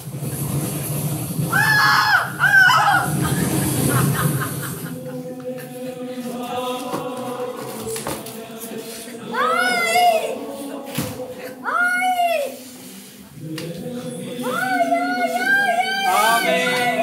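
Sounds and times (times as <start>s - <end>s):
high-pitched voices crying out: 1.5s - 3.4s.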